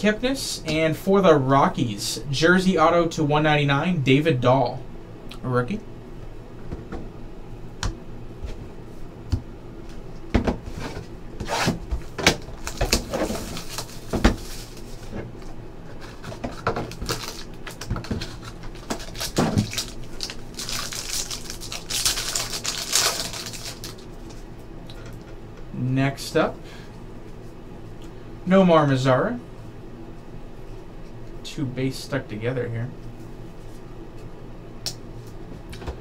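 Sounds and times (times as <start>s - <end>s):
plastic wrapping tearing: 12.5s - 15.0s, 16.1s - 24.1s.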